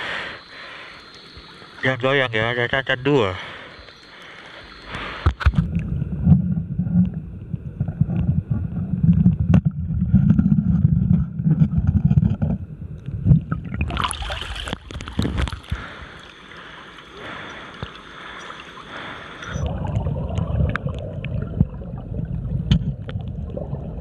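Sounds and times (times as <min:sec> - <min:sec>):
underwater river water gurgling: 0:00.0 - 0:24.0
knocks underwater: 0:07.8 - 0:12.6, 0:19.6 - 0:24.0.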